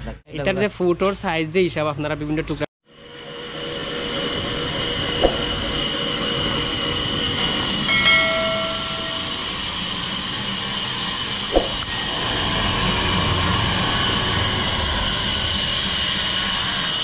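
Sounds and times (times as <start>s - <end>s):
sharp clicks: 6.5s - 6.7s, 7.6s - 7.8s.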